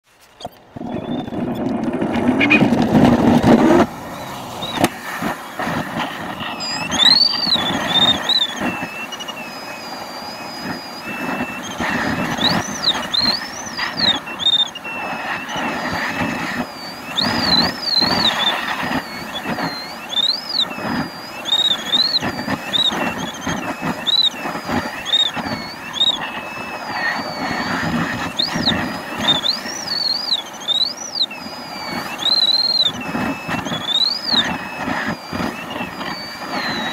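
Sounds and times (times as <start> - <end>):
wheel rumbling over ground: 0.1 - 31.0
variometer tone gliding in pitch: 0.4 - 36.9
air rushing: 0.8 - 8.3.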